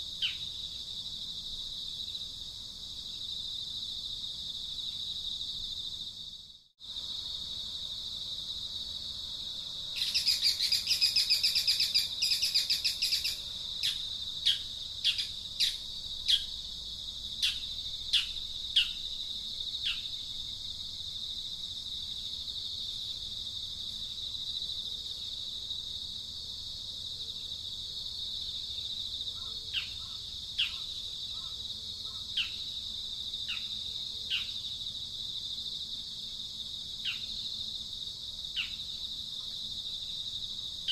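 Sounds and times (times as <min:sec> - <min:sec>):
insects droning: 0:00.0 - 0:40.9
bird chattering and chirping: 0:10.0 - 0:16.5.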